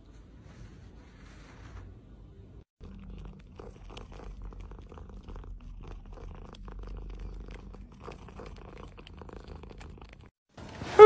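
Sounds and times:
cat purring: 0:02.8 - 0:10.4.

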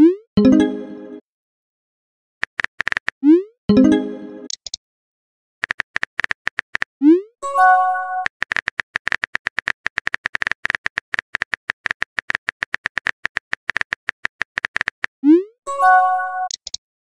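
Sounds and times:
chiming message tone: 0:00.4 - 0:01.2, 0:03.7 - 0:04.5, 0:15.7 - 0:16.5
phone keyboard typing clicks: 0:02.4 - 0:03.2, 0:05.6 - 0:06.9, 0:08.2 - 0:15.1, 0:16.5 - 0:16.8.

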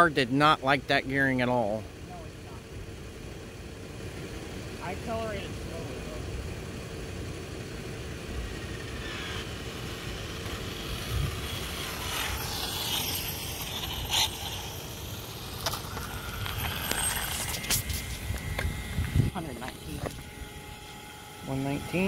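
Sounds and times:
electric motor whining: 0:01.5 - 0:22.0
steady low rumble: 0:01.8 - 0:22.0.

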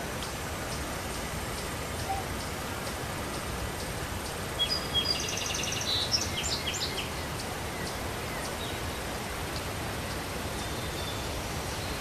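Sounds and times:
outdoor background hiss: 0:00.0 - 0:12.0
songbird chirps and trill: 0:03.8 - 0:09.1.

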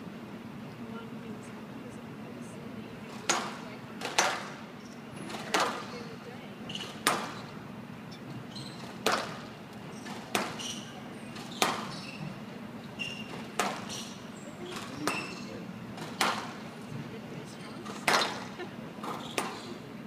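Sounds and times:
court shoes squeaking: 0:03.1 - 0:19.9
squash ball hitting rackets and walls: 0:03.2 - 0:04.6, 0:05.3 - 0:06.0, 0:06.7 - 0:07.5, 0:08.8 - 0:12.4, 0:13.0 - 0:16.7, 0:17.8 - 0:19.7.

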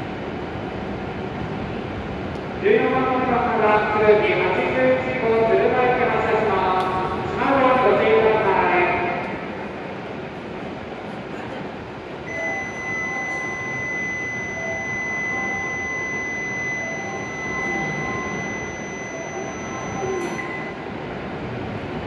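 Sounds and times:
station hum: 0:00.0 - 0:22.0
short quieter tones: 0:12.3 - 0:21.1
electronic departure signal tone: 0:12.3 - 0:21.2.

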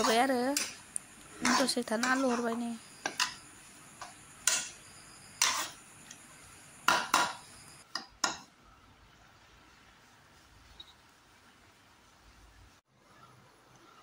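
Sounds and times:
utensil scraping steel pan: 0:01.4 - 0:03.4.

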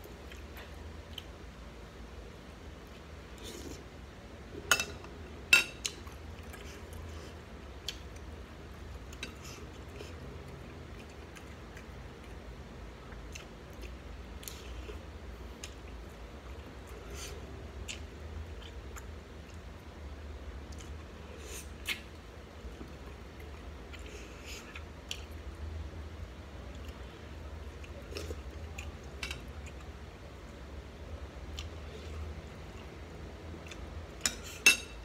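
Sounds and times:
person chewing wetly: 0:07.8 - 0:19.8, 0:31.5 - 0:34.2.

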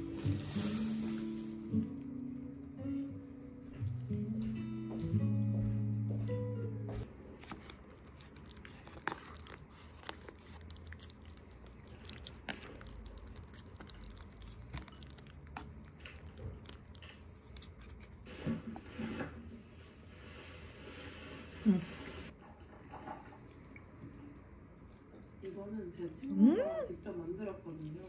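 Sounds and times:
guitar tune: 0:00.0 - 0:07.0
person chewing: 0:06.9 - 0:18.2, 0:23.4 - 0:25.4.

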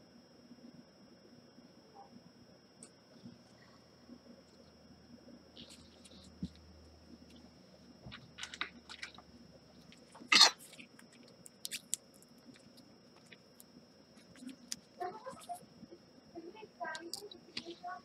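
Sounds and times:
faint high whine: 0:00.0 - 0:18.0
crunchy scrape: 0:05.6 - 0:06.6, 0:08.1 - 0:13.4.

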